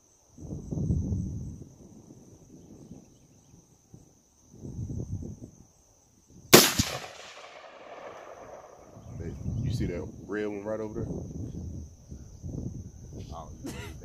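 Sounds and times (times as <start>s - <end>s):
rifle gunshot with echo: 6.5s - 9.0s.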